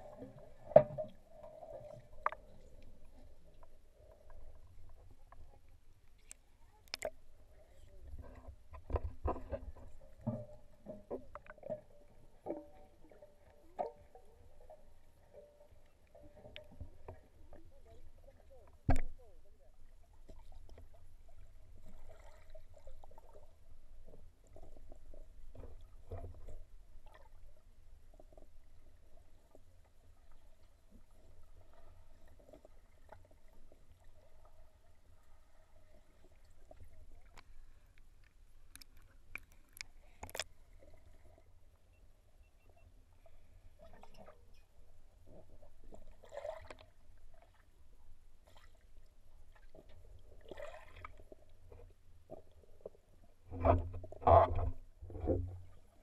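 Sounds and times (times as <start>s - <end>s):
gurgling water: 0.0s - 41.6s, 43.2s - 47.8s, 48.4s - 56.0s
underwater low rumble: 0.0s - 56.0s
faint clicks and knocks: 8.1s - 17.8s, 36.3s - 40.6s.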